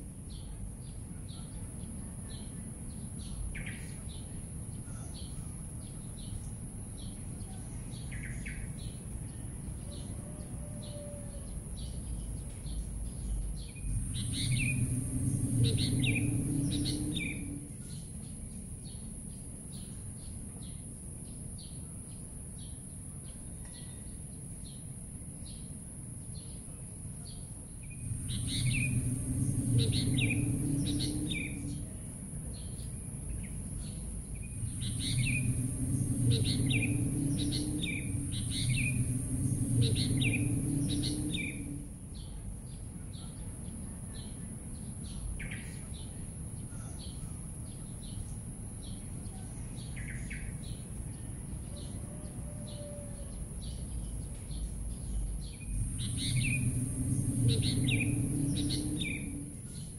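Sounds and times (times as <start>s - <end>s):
small birds chirping: 0.2s - 10.2s, 10.8s - 52.0s, 52.6s - 59.9s
low rumble: 11.5s - 20.0s, 27.7s - 46.6s, 47.7s - 59.9s
steady high-pitched tone: 13.8s - 18.2s, 27.8s - 42.2s, 55.6s - 59.9s.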